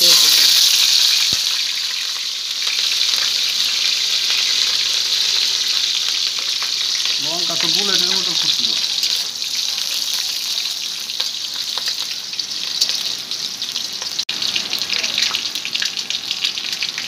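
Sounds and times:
chillies sizzling in hot oil: 0.0s - 17.0s.

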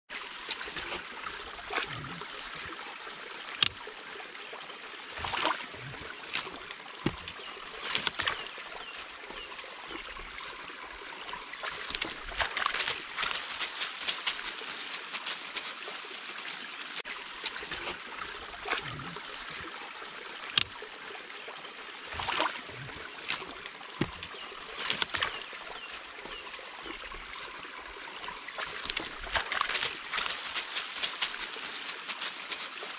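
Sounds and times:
trickle of running water: 0.1s - 32.9s
dog splashing in a puddle: 0.5s - 3.7s, 5.2s - 8.9s, 11.3s - 16.2s, 17.4s - 19.9s, 22.1s - 26.4s, 28.2s - 32.9s
sticks cracking: 6.2s - 8.4s, 23.2s - 25.3s.

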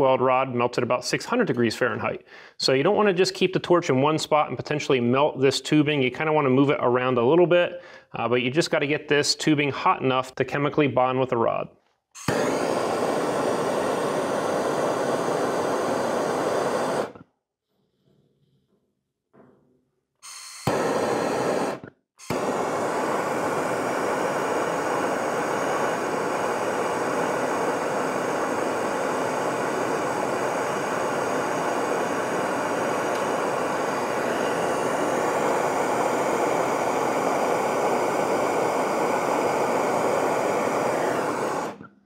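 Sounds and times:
propane torch hissing: 12.2s - 17.2s, 20.2s - 41.9s.

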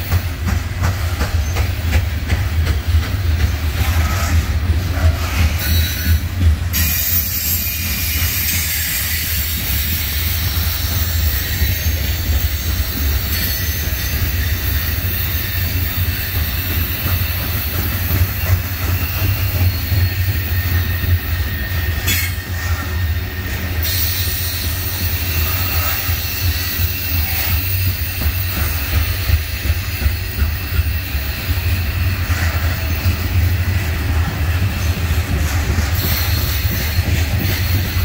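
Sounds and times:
train wheels rumbling on rail: 0.0s - 38.0s
high-pitched wheel squeal: 6.8s - 17.4s.

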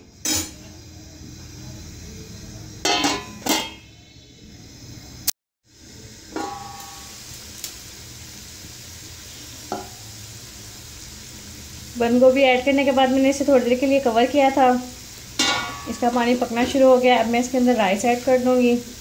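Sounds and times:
pot of water boiling: 0.0s - 19.0s
metal pot lid clanking: 0.2s - 0.6s, 2.8s - 3.9s, 6.3s - 7.1s, 9.7s - 10.0s, 15.4s - 16.8s.

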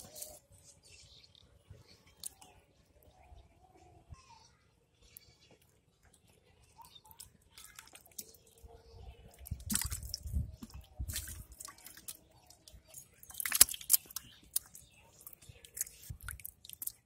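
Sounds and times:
small wet clicks and drips: 1.1s - 3.2s, 5.0s - 17.0s
mud squelching: 6.9s - 17.0s
water sloshing: 9.2s - 17.0s.

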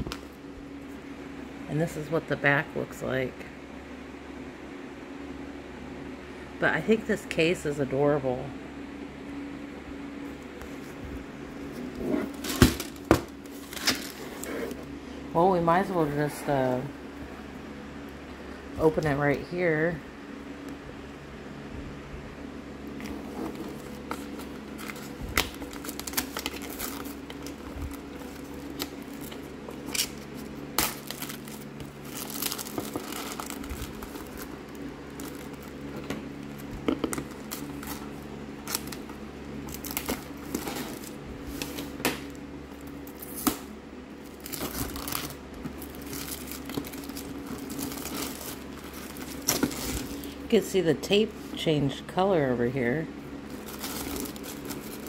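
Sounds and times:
plastic shrink-wrap crinkling: 23.0s - 43.5s, 44.2s - 50.4s, 53.4s - 55.0s.

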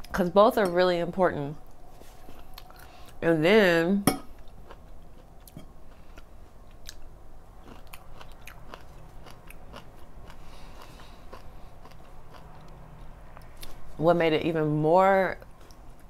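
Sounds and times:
person chewing food: 1.7s - 3.2s, 4.3s - 13.8s.

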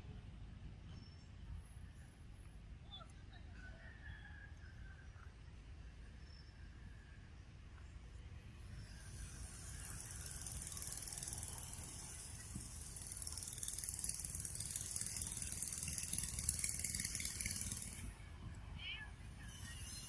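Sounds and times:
insect pulsing buzz: 8.9s - 18.0s.

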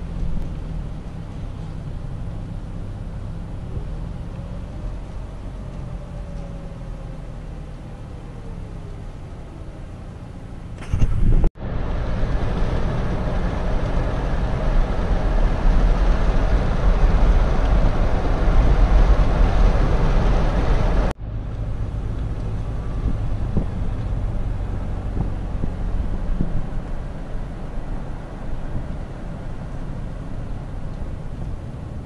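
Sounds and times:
car driving low rumble: 0.0s - 32.0s
wind on microphone: 10.8s - 21.1s, 22.3s - 32.0s.

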